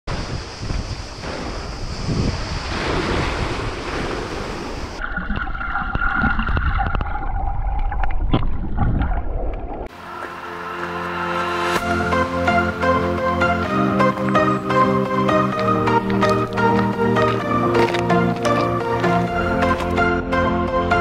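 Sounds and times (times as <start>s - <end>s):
waves: 0.1s - 5.4s, 9.8s - 20.0s
wind over microphone: 0.1s - 9.9s
steady tones: 9.9s - 20.8s
music: 9.9s - 21.0s.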